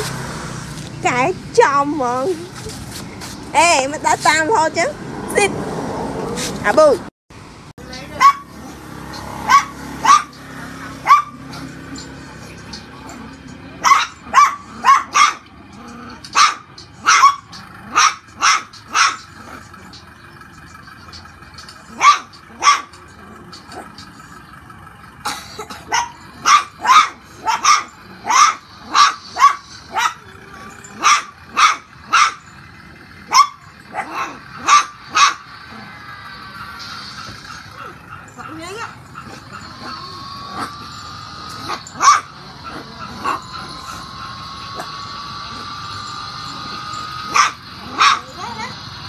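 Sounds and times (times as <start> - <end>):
puppy barking high-pitched yaps: 8.2 - 11.8, 13.8 - 19.6, 21.8 - 23.9, 25.8 - 32.6, 33.3 - 35.5, 37.7 - 44.9, 46.5 - 48.5.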